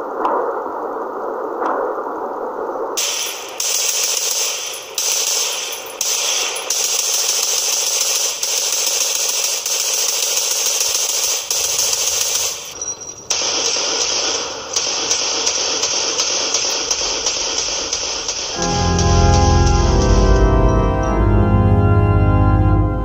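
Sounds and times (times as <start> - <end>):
machine-gun fire: 3.0 - 20.1.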